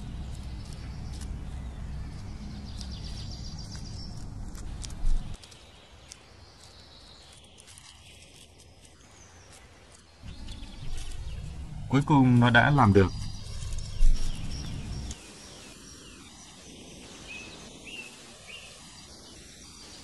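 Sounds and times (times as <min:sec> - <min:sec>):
low outdoor rumble: 0:00.0 - 0:05.5, 0:10.2 - 0:15.3
bird claws scratching bark: 0:00.0 - 0:11.9, 0:13.1 - 0:15.2.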